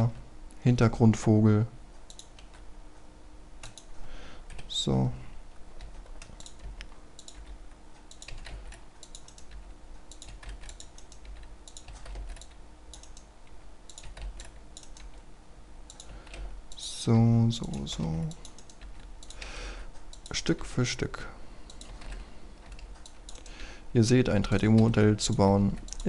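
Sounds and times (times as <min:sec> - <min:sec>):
low steady hum: 0:00.0 - 0:26.0
computer mouse clicking: 0:02.1 - 0:02.6, 0:03.6 - 0:04.7, 0:05.8 - 0:13.3, 0:13.9 - 0:15.2, 0:15.9 - 0:16.8, 0:17.6 - 0:20.4, 0:21.6 - 0:23.6, 0:24.4 - 0:26.0
keyboard keys clicking: 0:03.6 - 0:03.9, 0:05.8 - 0:13.3, 0:13.9 - 0:15.2, 0:21.7 - 0:23.5.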